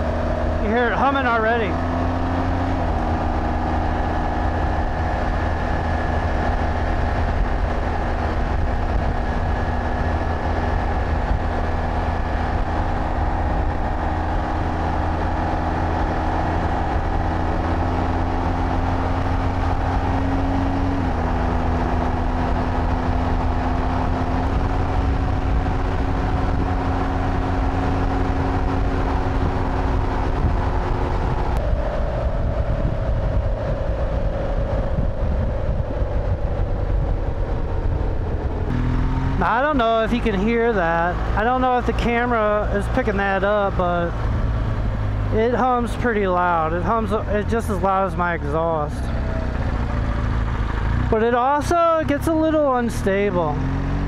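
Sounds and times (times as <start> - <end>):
wind rush: 0.0 - 40.2
motorcycle exhaust and engine: 0.0 - 54.0
tire humming on tarmac: 0.0 - 54.0.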